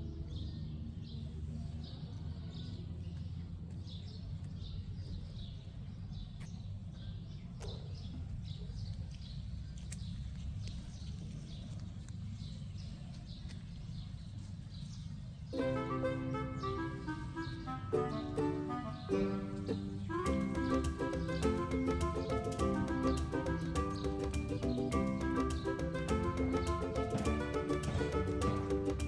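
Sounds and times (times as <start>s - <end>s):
bird chirping: 0.0s - 29.0s
music: 15.6s - 29.0s.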